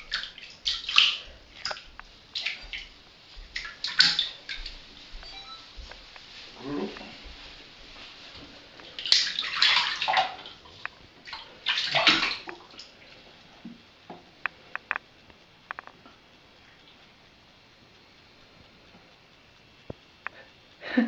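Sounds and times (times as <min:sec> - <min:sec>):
kitten splashing in bathwater: 0:00.0 - 0:05.2, 0:06.2 - 0:13.0
water drips: 0:00.0 - 0:05.2, 0:06.0 - 0:13.8.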